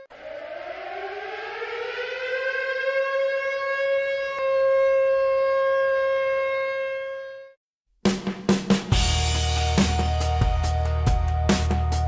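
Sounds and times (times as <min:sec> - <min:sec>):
air-raid siren steady tone: 0:00.0 - 0:07.6.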